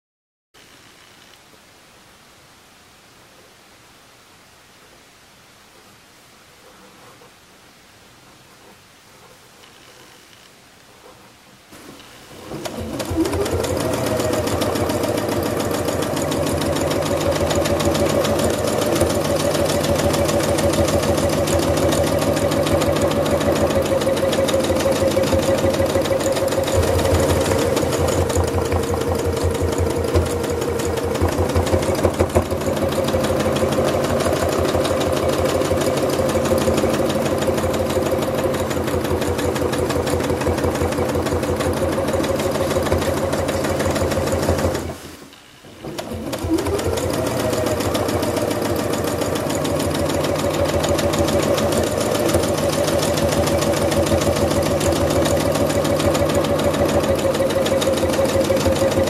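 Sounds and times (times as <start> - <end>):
sewing machine stitching fast: 11.8 - 45.1, 45.7 - 59.0.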